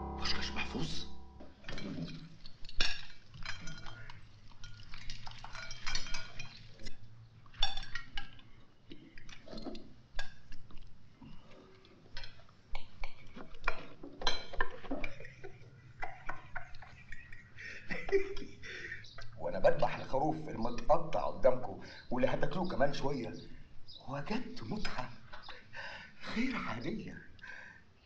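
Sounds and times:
plates and cutlery clinking: 0.0 - 8.4, 13.2 - 17.3.

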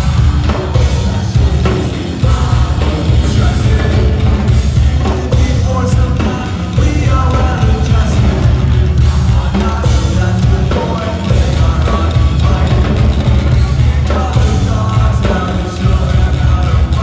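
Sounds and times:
drum kit: 0.0 - 17.0
electric guitar: 0.0 - 17.0.

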